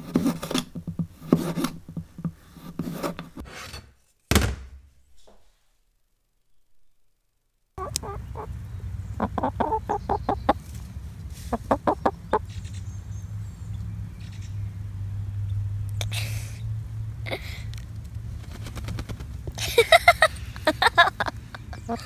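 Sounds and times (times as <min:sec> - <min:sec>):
chickens clucking: 0:07.8 - 0:12.8, 0:19.9 - 0:22.0
steady low hum: 0:07.8 - 0:22.0.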